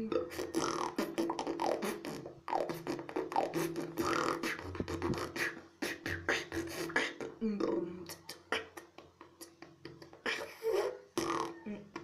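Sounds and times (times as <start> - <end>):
mouth snare and hi-hat clicks: 0.5 - 7.3.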